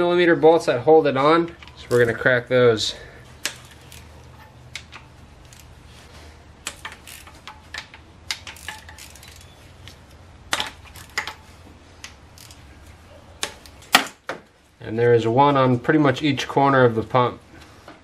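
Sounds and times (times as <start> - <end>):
ratchet and socket clicking: 3.4 - 5.7, 6.6 - 11.4, 12.0 - 12.6.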